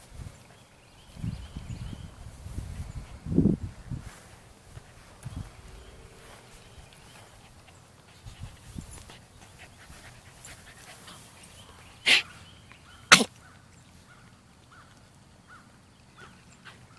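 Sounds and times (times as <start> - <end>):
dog panting: 6.5 - 12.4
dog huffing: 12.0 - 12.4.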